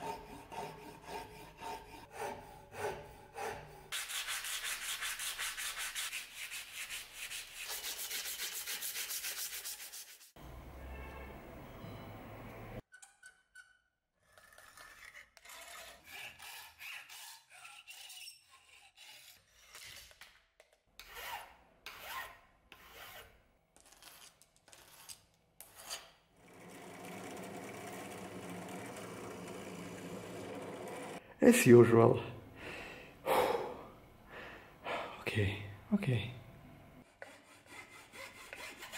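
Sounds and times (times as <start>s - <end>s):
hand file on steel rod: 0.0s - 10.0s, 13.6s - 20.2s, 37.0s - 38.9s
drill press drilling wood: 26.4s - 31.2s.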